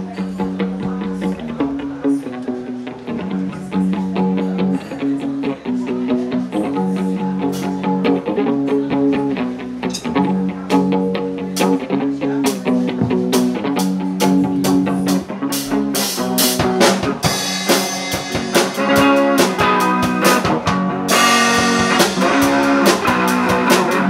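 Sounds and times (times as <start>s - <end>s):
electric guitar chords: 0.0s - 24.0s
steady rhythm: 6.1s - 24.0s.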